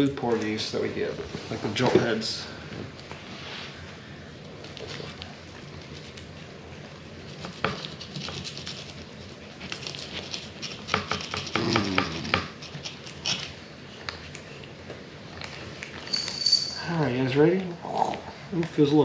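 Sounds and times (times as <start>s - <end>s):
knife scraping fish scales: 7.3s - 13.6s.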